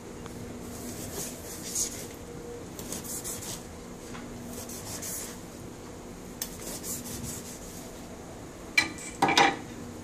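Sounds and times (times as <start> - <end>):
knife scratching through rind: 0.8 - 2.2, 2.8 - 3.7, 6.4 - 7.8.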